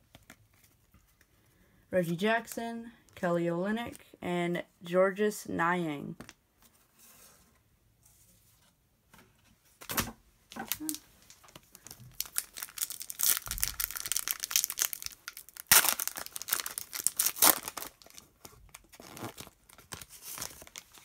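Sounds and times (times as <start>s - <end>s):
foil wrapper crinkling and ripping: 10.6s - 21.0s.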